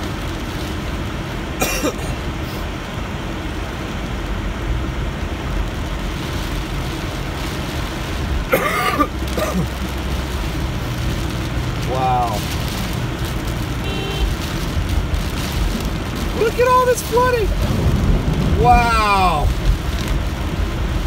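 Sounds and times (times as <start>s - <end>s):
low engine hum: 0.0s - 21.0s
rain on windshield: 0.0s - 21.0s
tyres on wet road: 0.0s - 21.0s.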